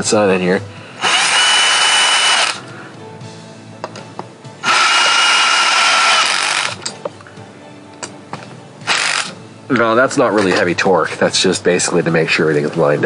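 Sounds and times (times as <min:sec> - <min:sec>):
power drill whining: 0:01.0 - 0:02.7, 0:04.6 - 0:06.9, 0:08.8 - 0:09.4.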